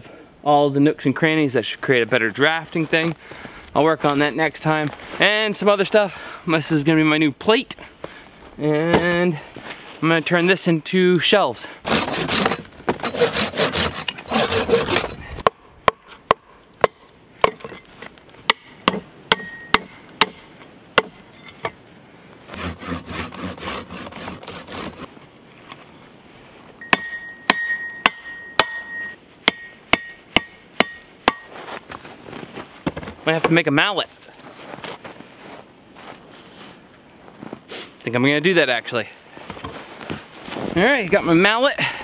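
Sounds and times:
pruning saw rasping through log: 0:11.8 - 0:15.3, 0:22.5 - 0:25.1.

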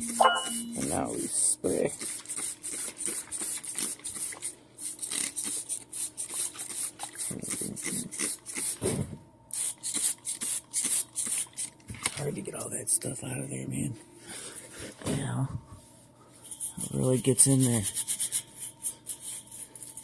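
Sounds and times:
faint steady hum: 0:00.0 - 0:20.0
spray bottle squirting: 0:02.0 - 0:08.8.

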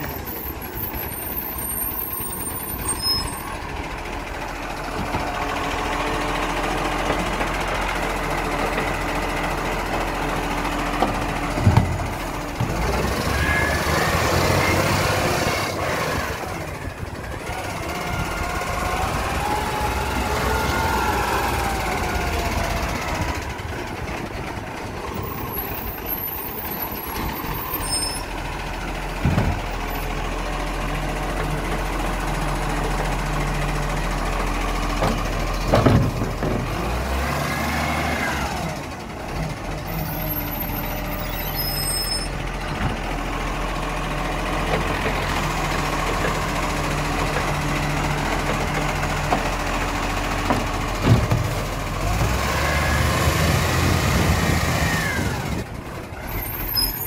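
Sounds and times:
garbage truck engine running: 0:00.0 - 0:57.0.

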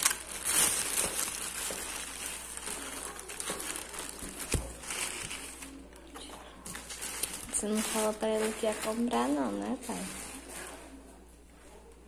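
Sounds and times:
plastic wrapping crinkling: 0:00.0 - 0:11.0.

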